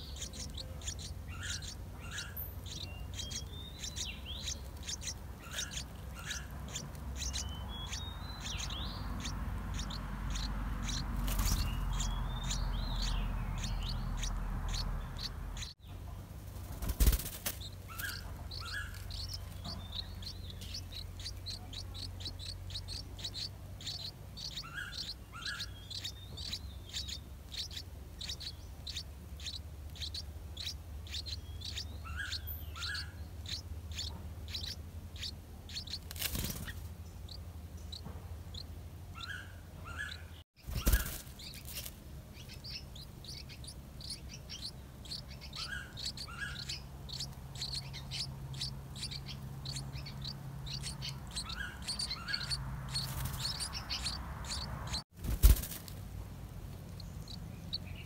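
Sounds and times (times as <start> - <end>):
nestlings cheeping: 0.0 - 15.8, 16.8 - 39.4, 40.0 - 55.8
rustle: 15.0 - 48.1, 50.9 - 58.0.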